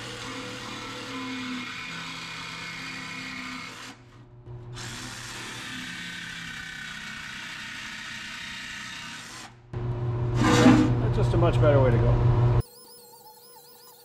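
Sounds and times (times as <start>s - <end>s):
jigsaw cutting sheet metal: 0.0s - 4.0s, 4.8s - 9.6s.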